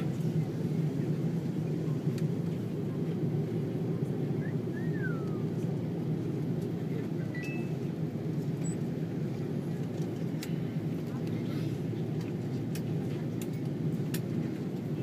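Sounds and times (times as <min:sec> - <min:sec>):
airliner engine rumble in cabin: 0:00.0 - 0:15.0
faint falling whistle: 0:04.4 - 0:05.4.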